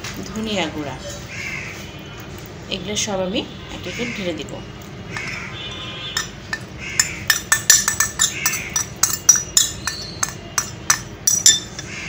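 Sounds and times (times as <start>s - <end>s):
spoon clinking on plate and pan: 6.2s - 11.9s.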